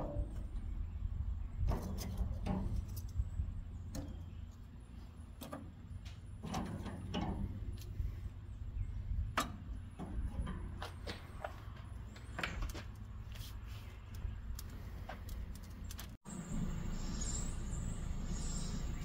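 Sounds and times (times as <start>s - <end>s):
steady low rumble: 7.0s - 11.0s.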